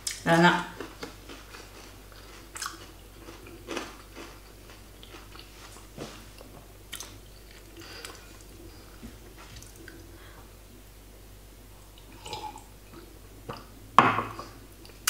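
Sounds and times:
chewing crisp food: 0:00.0 - 0:08.7.

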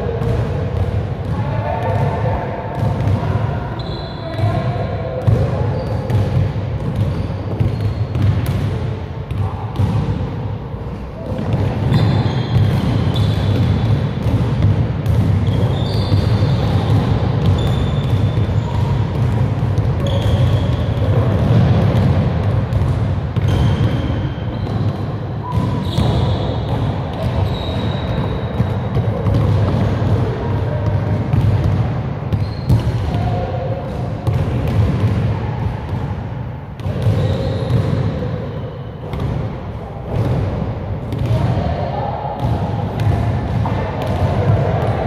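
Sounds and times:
sneaker squeaks: 0:03.7 - 0:08.6, 0:11.2 - 0:13.9, 0:15.3 - 0:21.7, 0:23.4 - 0:29.8, 0:32.3 - 0:33.4, 0:36.8 - 0:39.3.

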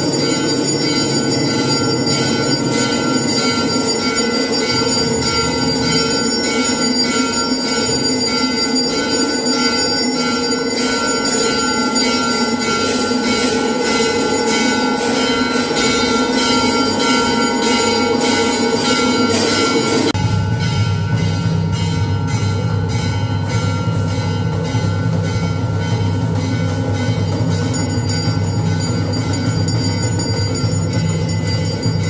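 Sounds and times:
temple bells ringing: 0:00.0 - 0:32.0
brass gong strikes: 0:12.8 - 0:32.0.

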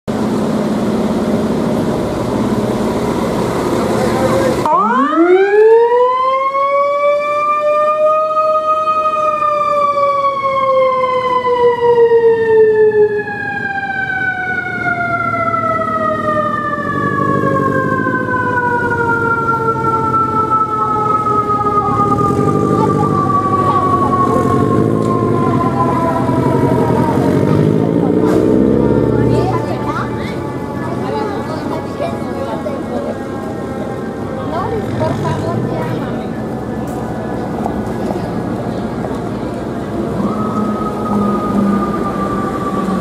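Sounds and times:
fire engine siren winding: 0:04.4 - 0:32.0, 0:40.0 - 0:43.0.

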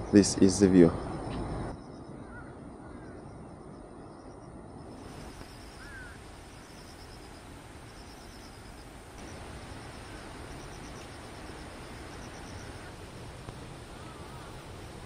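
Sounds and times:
insects chirping: 0:00.0 - 0:15.0
steady rushing noise: 0:04.8 - 0:15.0.

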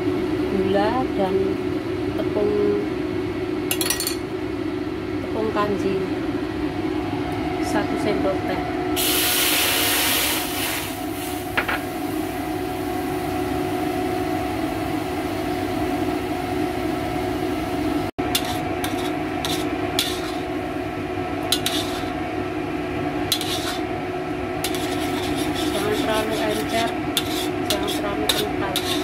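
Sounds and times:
steady hum: 0:00.0 - 0:29.0
sauce hissing in hot wok: 0:09.0 - 0:12.9, 0:18.4 - 0:20.5, 0:21.6 - 0:22.2, 0:23.4 - 0:23.9, 0:24.7 - 0:29.0
metal ladle scraping wok: 0:18.3 - 0:20.5, 0:21.4 - 0:22.2, 0:23.3 - 0:23.9, 0:24.6 - 0:29.0.

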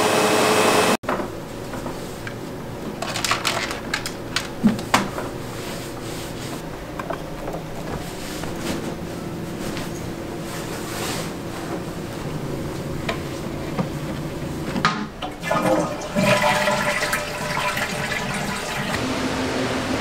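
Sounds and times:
toilet flushing water rush: 0:12.4 - 0:20.0.

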